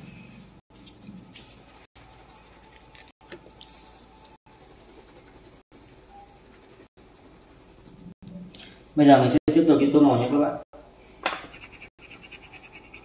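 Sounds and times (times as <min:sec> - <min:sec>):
pencil scratching on paper: 0:01.3 - 0:08.2, 0:11.4 - 0:13.0.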